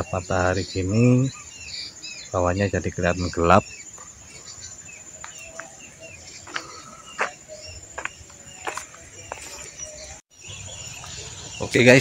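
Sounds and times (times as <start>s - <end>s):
high insect trill: 0.0s - 12.0s
footsteps walking: 5.2s - 9.8s.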